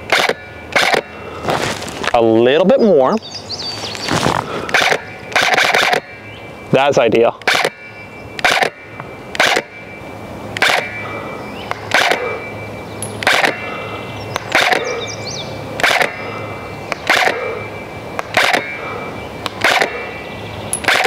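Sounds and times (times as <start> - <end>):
airsoft rifle shots: 0.1 - 1.2, 4.6 - 6.2, 7.4 - 9.8, 10.6 - 11.0, 11.7 - 12.4, 13.2 - 13.8, 14.4 - 15.0, 15.8 - 17.6, 18.2 - 18.8, 19.5 - 20.2.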